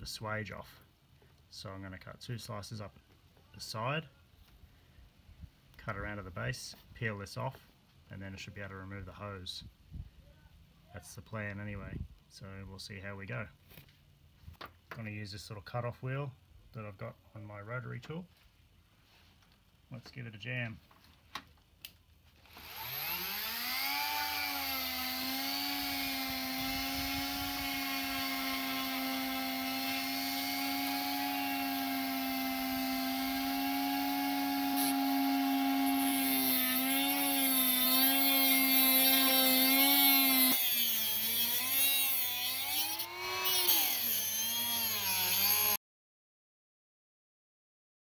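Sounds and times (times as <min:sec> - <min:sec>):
rotary tool high whine: 0:22.4 - 0:45.8
cut-off wheel cutting metal: 0:22.5 - 0:45.8.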